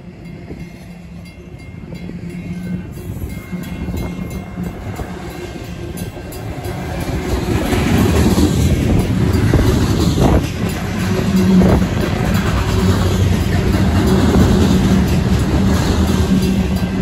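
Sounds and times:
crossing bell ringing: 0:00.0 - 0:17.0
train wheels clattering over rails: 0:03.5 - 0:17.0.

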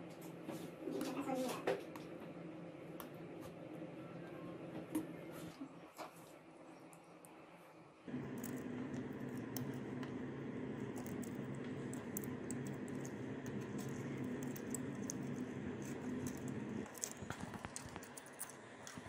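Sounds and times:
steady low hum: 0:08.0 - 0:19.0
plastic tool clicks and scratches: 0:10.8 - 0:19.0.

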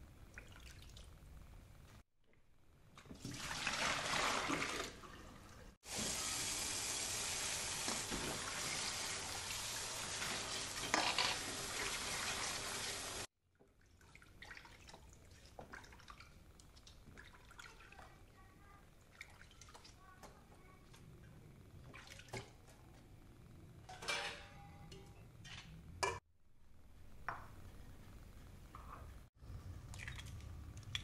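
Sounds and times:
water running into sink: 0:03.0 - 0:13.3
water drips and splashes: 0:13.5 - 0:18.1, 0:19.1 - 0:20.0, 0:29.9 - 0:31.0.

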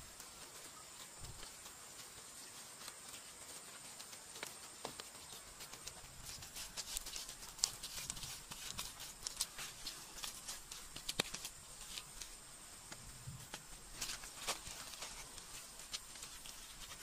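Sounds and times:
hands slapping wet mud: 0:05.8 - 0:11.5.

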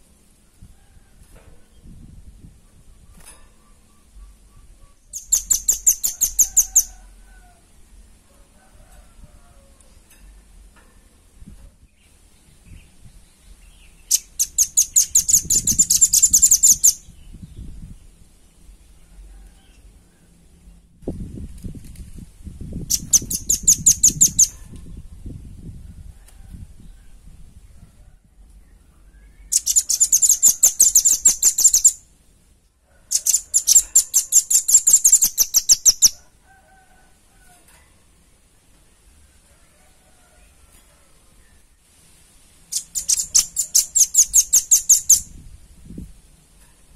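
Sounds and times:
bird calling in rapid trills: 0:03.7 - 0:06.9, 0:14.1 - 0:17.0, 0:22.9 - 0:24.6, 0:29.5 - 0:32.0, 0:33.2 - 0:36.2, 0:42.7 - 0:45.3.

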